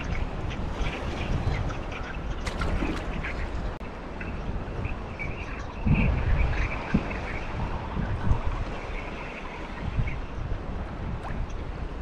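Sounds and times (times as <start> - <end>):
water slapping boat hull: 0.0 - 3.8
wind buffeting microphone: 0.0 - 12.0.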